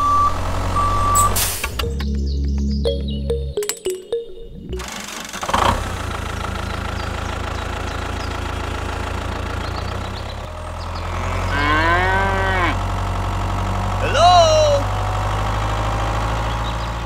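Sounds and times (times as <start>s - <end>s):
low engine hum: 4.6s - 17.0s
cow mooing: 11.5s - 12.8s.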